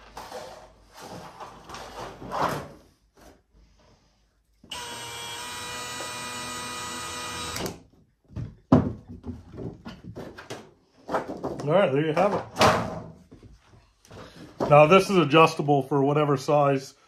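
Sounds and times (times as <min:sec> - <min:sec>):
cordless drill running: 0:04.7 - 0:07.8.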